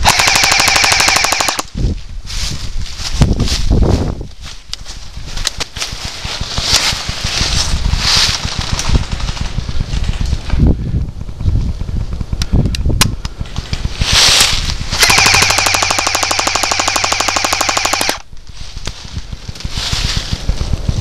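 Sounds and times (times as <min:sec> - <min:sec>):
airsoft gun full-auto burst: 0:00.0 - 0:01.7, 0:14.9 - 0:18.3
sharp clicks: 0:00.0 - 0:01.7, 0:12.3 - 0:13.9, 0:14.6 - 0:19.7.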